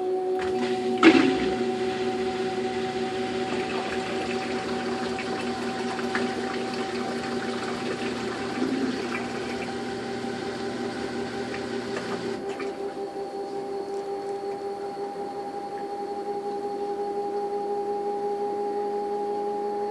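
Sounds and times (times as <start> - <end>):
draining water rushing: 0.4 - 13.0
washing machine spinning: 0.4 - 19.9.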